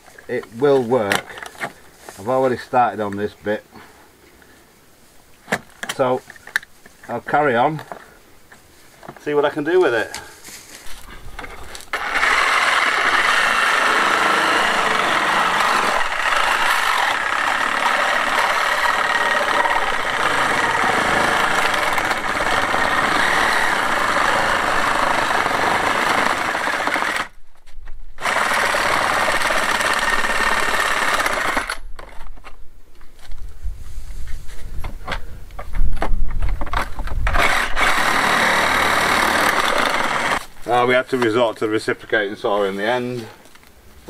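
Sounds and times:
reciprocating saw cutting plastic: 11.9s - 27.3s, 28.2s - 31.8s, 37.3s - 40.5s.

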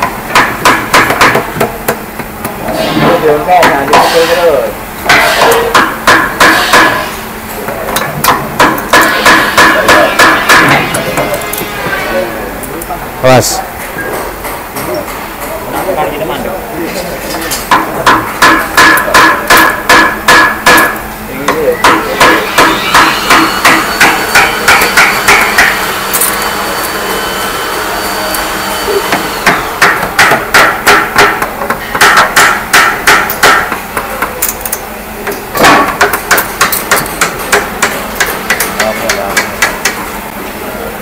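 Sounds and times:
hammer blows ringing: 2.8s - 7.2s, 8.2s - 12.2s, 17.7s - 26.0s, 28.7s - 34.4s.

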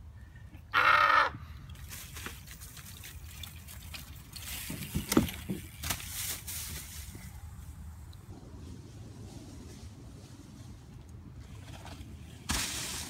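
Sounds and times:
leaves rustling: 1.8s - 13.0s
bike crashing with knocks and thud: 12.4s - 13.0s.

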